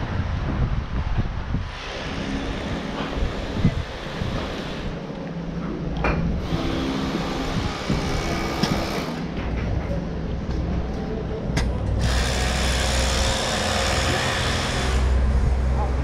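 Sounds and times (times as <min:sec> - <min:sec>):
street noise: 0:00.0 - 0:16.0.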